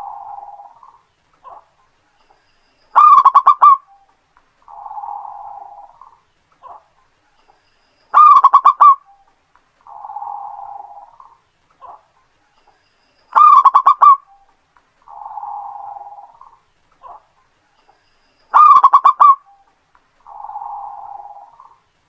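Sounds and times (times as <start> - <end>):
dove cooing: 0.0 - 1.7, 3.0 - 6.9, 8.1 - 9.2, 9.8 - 12.1, 13.3 - 17.3, 18.5 - 21.8.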